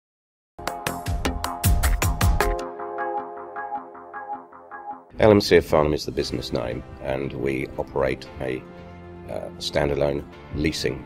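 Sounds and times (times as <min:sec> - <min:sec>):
electronic music with heavy beats: 0:00.6 - 0:05.1.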